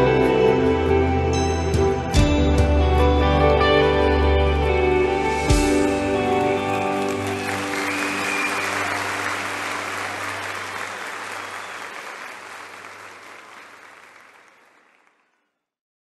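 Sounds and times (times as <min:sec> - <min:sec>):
audience applauding: 0:05.8 - 0:15.5.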